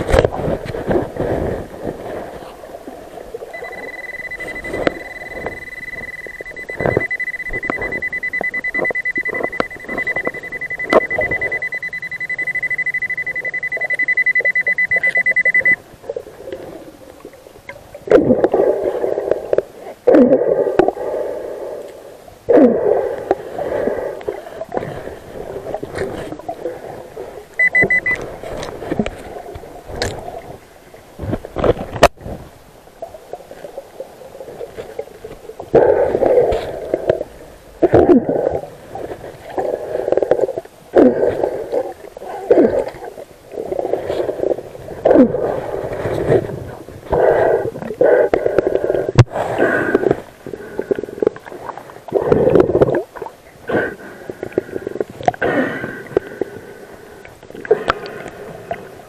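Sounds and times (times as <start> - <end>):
water swishing and knocking: 0.0 - 19.7
metal detector high beep: 3.5 - 15.8, 27.6 - 28.2.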